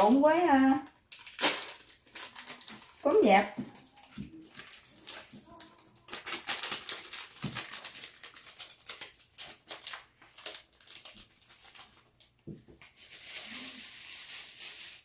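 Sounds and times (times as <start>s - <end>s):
rice flakes rustling in a bowl: 12.8s - 15.0s.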